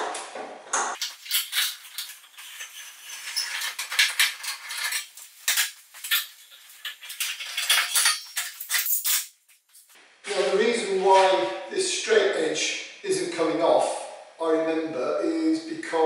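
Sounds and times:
scraping on metal panel: 0:01.0 - 0:08.8.

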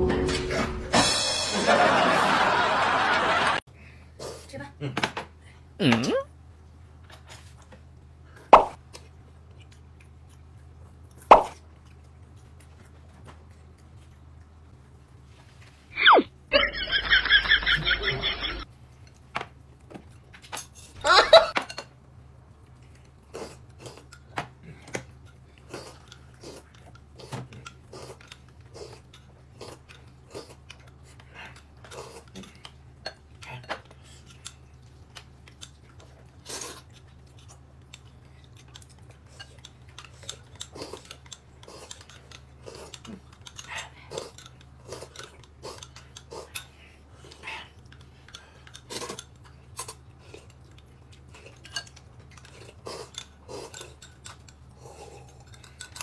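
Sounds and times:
utensils clinking on plates: 0:55.2 - 0:56.0.

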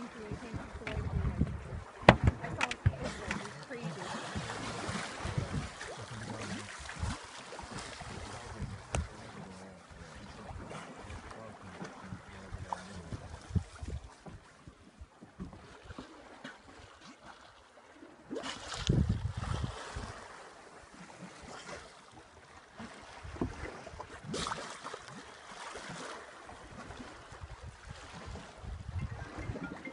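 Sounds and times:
wind buffeting microphone: 0:00.0 - 0:03.6, 0:04.2 - 0:09.4, 0:10.0 - 0:14.8, 0:18.6 - 0:20.4, 0:26.7 - 0:29.9
water lapping against boat: 0:00.0 - 0:29.9.

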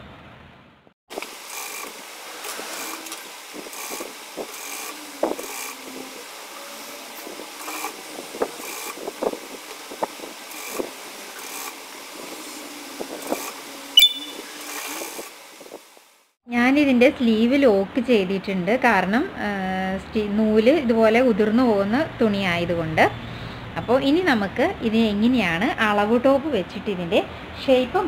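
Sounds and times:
sewing machine running: 0:01.5 - 0:05.8.

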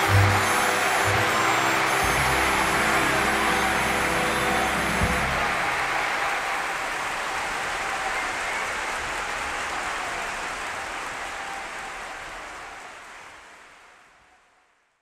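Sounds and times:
orchestra held notes: 0:00.0 - 0:06.8
audience applauding: 0:00.0 - 0:14.7.

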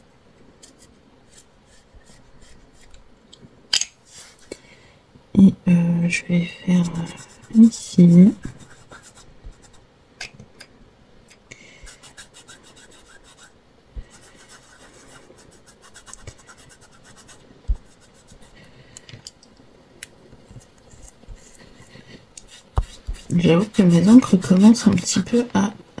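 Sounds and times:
foam dauber dabbing ink: 0:20.6 - 0:25.2.

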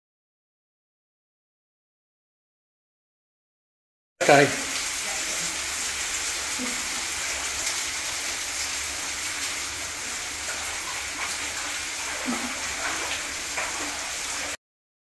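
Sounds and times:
running water hissing: 0:04.2 - 0:14.6.

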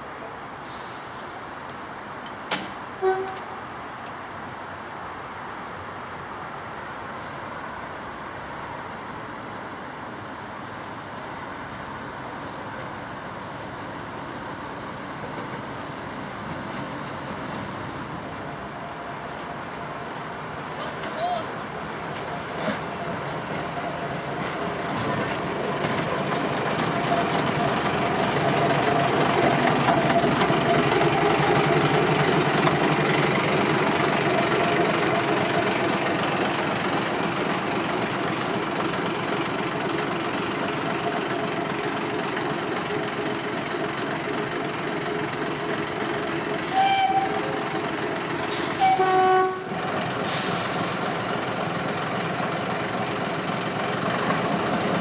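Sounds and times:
locomotive horn toots: 0:03.0 - 0:03.6, 0:46.7 - 0:47.6, 0:48.6 - 0:49.8
diesel locomotive engine running: 0:11.7 - 0:55.0.

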